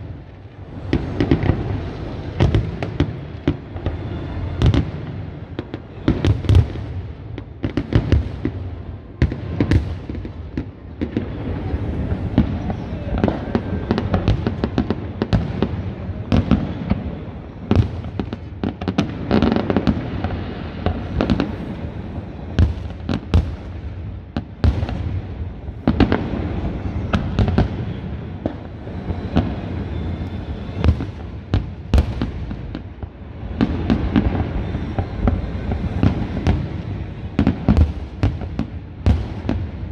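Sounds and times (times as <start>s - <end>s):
distant fireworks bursts: 0.0s - 39.9s
fireworks bangs: 0.0s - 39.9s.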